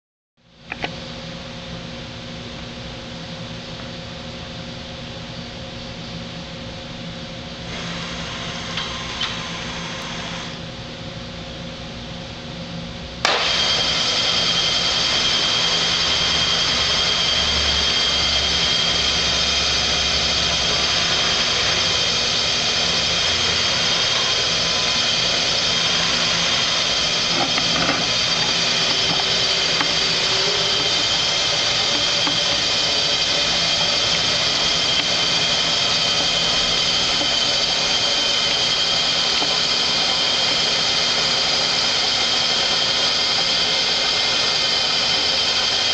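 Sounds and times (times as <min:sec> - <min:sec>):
milling machine spindle whining: 0:07.6 - 0:10.6, 0:13.2 - 0:45.9.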